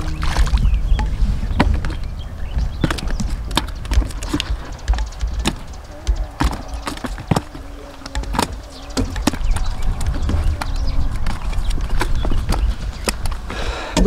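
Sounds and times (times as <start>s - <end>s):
fish slapping on wooden boards: 0.0s - 14.0s
wind rumble on microphone: 0.0s - 14.0s.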